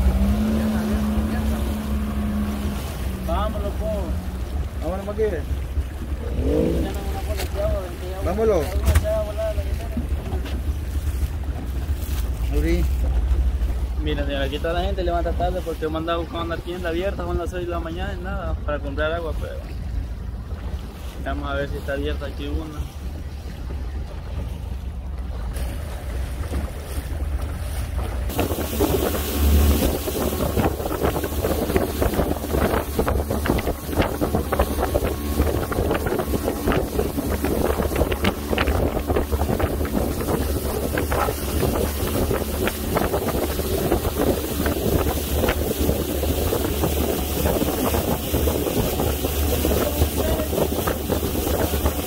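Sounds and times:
motorboat engine running: 0:00.0 - 0:52.0
wind buffeting microphone: 0:22.6 - 0:52.0.

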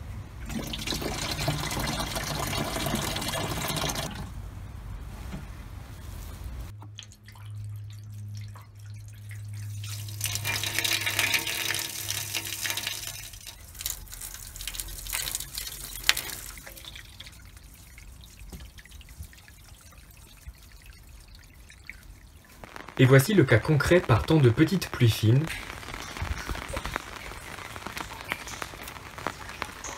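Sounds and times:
water trickling into metal barrel: 0:00.3 - 0:04.4, 0:06.8 - 0:22.6
water drips: 0:00.4 - 0:04.3, 0:06.7 - 0:29.9
water running into plastic can: 0:00.5 - 0:04.3, 0:09.4 - 0:21.4.

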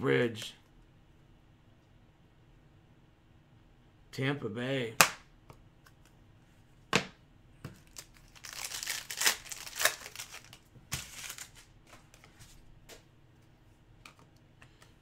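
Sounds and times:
foil wrapper tearing and crinkling: 0:07.8 - 0:11.7.

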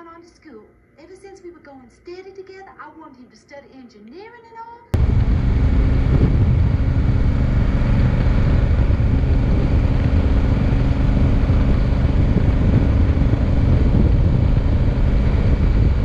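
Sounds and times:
motorcycle engine running steadily: 0:05.0 - 0:16.0
wind noise on microphone: 0:05.0 - 0:16.0.

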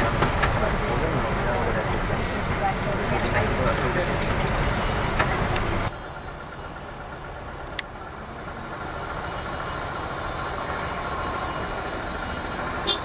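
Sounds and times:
vehicle engine hum with whine: 0:00.0 - 0:13.0
click: 0:07.6 - 0:07.9.

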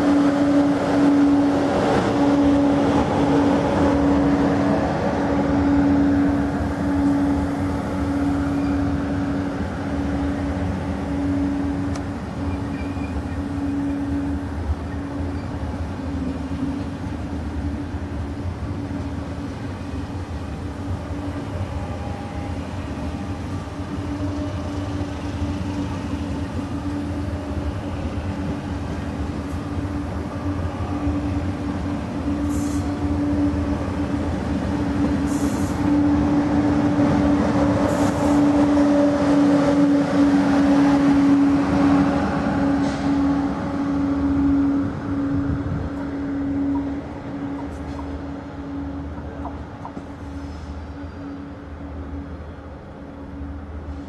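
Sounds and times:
train wheels rumbling on rail: 0:00.0 - 0:54.0
brief high hisses: 0:32.4 - 0:33.0, 0:35.2 - 0:35.8.

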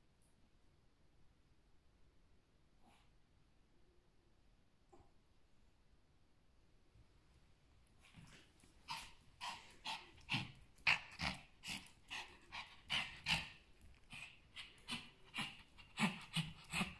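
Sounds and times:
dog panting: 0:08.0 - 0:16.9.

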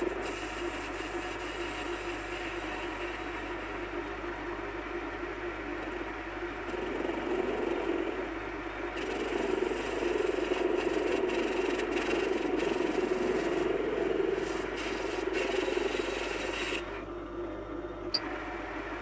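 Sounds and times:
lathe motor hum: 0:00.0 - 0:19.0
lathe tool scraping metal: 0:09.0 - 0:16.9.

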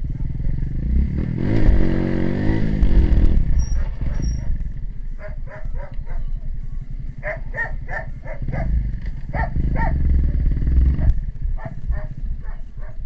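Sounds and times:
motorcycle engine running: 0:00.0 - 0:13.0
dog barking: 0:03.6 - 0:04.6, 0:05.2 - 0:06.4, 0:07.2 - 0:13.0.

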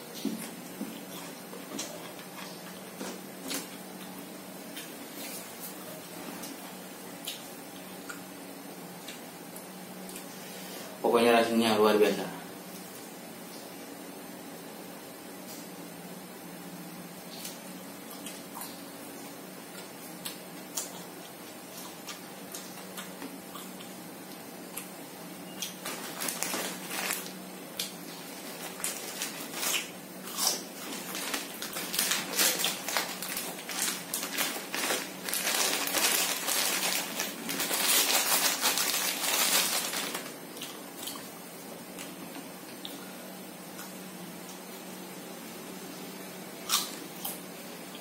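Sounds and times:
chewing and crunching: 0:00.1 - 0:05.4, 0:17.4 - 0:18.8, 0:19.7 - 0:24.9, 0:25.5 - 0:41.3
rustling: 0:25.8 - 0:27.4, 0:30.6 - 0:40.3.

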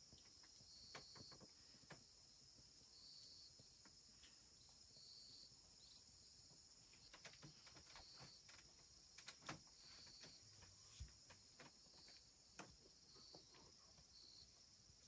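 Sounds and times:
insects chirring: 0:00.0 - 0:15.0
light clicks and taps: 0:06.9 - 0:14.1.

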